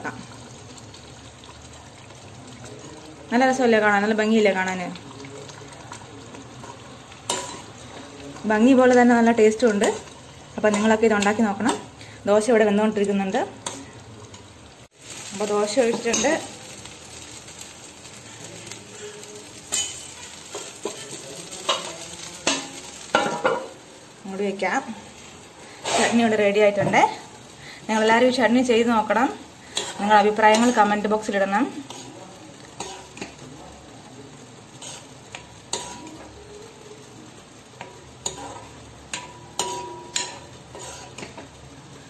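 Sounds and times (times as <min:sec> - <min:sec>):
batter sizzling on hot iron: 0:00.0 - 0:42.0
metal utensils clinking: 0:06.6 - 0:07.8, 0:15.4 - 0:16.5, 0:19.2 - 0:23.7, 0:37.8 - 0:41.5.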